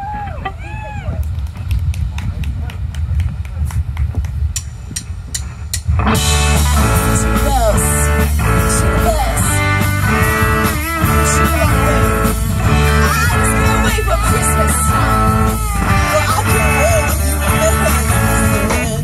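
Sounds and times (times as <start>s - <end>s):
live rock band playing: 6.0s - 19.0s.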